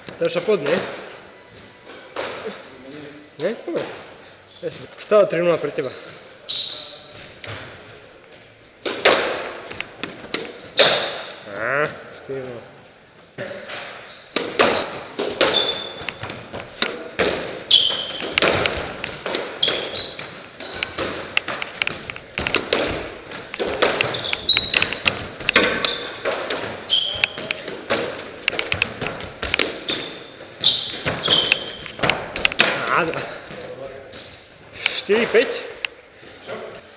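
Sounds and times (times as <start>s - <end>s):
squash ball smacking racket and walls: 1.9s - 2.6s, 8.8s - 11.4s, 13.4s - 33.7s
shoes squeaking on wooden floor: 5.8s - 7.8s, 13.5s - 36.5s.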